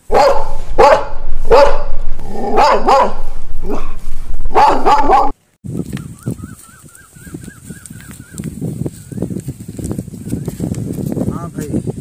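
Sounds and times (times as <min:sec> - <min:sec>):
dog barking: 0:00.0 - 0:05.4.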